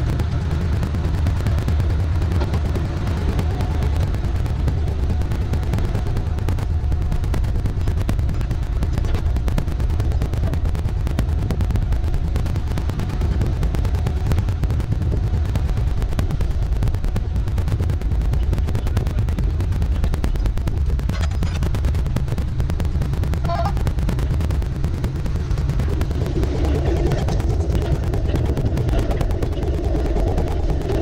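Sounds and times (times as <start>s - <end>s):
wind buffeting the microphone: 0.0s - 31.0s.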